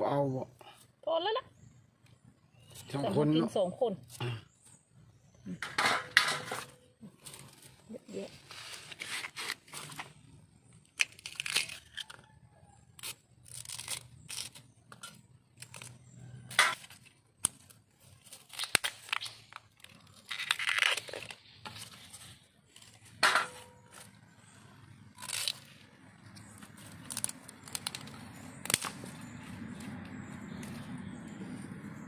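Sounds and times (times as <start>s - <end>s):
bamboo husks tearing and crunching: 7.0s - 31.8s.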